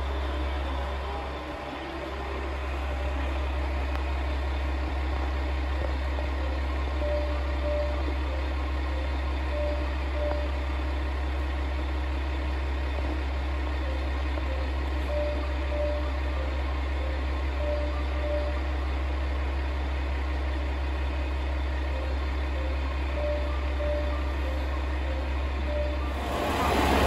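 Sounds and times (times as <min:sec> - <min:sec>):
diesel engine idling: 0:00.0 - 0:27.0.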